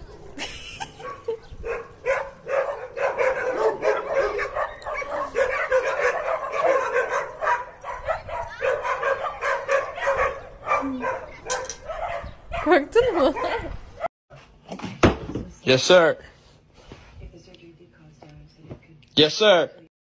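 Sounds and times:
dogs barking and yipping: 0.0 - 14.1.

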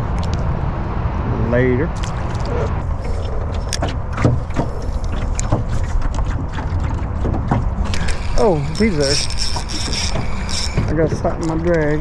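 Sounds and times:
wind rumbling on microphone: 0.0 - 12.0
fishing reel clicks and taps: 7.9 - 12.0.

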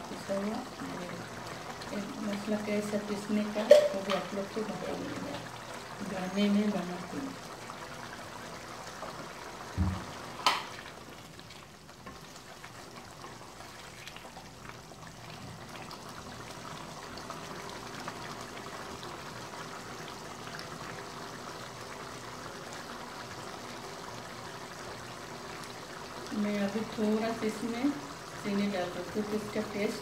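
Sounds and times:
gravy bubbling: 0.0 - 30.0
dull thump: 9.8 - 10.1.

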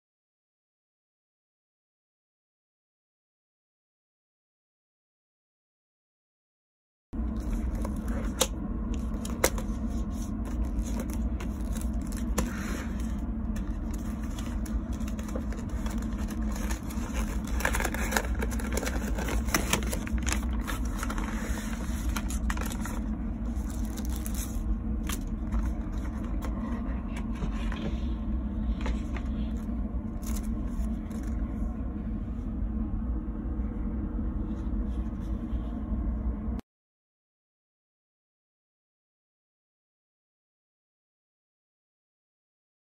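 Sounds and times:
paper crackling: 7.2 - 27.8, 28.7 - 31.6
train rumbling: 7.2 - 36.6.

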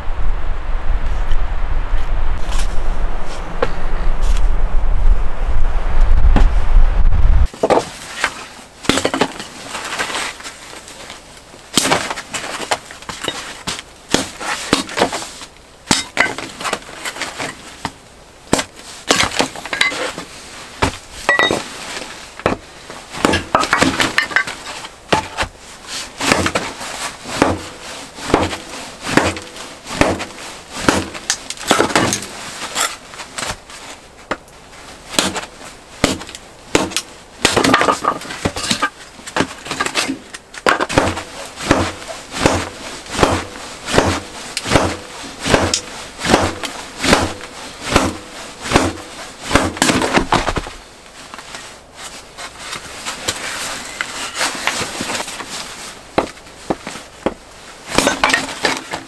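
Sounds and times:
hard objects knocking and cracking: 7.5 - 9.6, 22.4 - 25.6, 26.2 - 26.7, 27.3 - 33.0, 35.1 - 50.7, 56.2 - 59.0.

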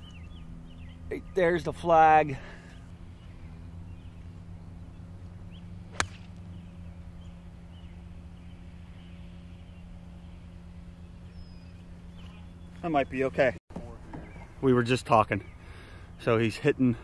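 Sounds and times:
golf club striking ball: 5.2 - 6.7.

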